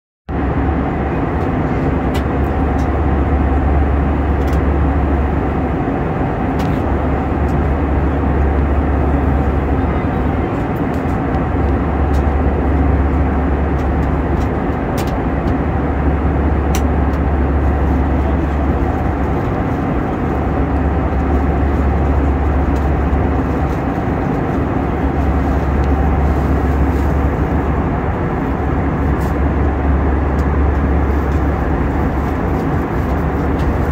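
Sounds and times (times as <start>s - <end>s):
airliner cabin engine drone: 0.3s - 33.9s
steady hum: 0.3s - 33.9s
rushing airflow: 2.6s - 33.9s.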